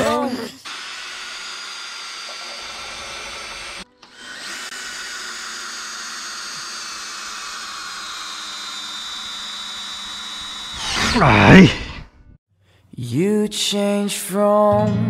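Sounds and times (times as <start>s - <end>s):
drill boring into wood: 0.0s - 12.0s.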